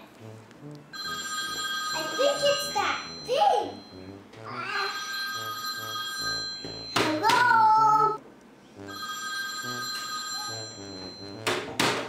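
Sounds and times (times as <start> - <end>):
telephone ringing: 1.0 - 4.0, 4.9 - 7.3, 8.9 - 11.4.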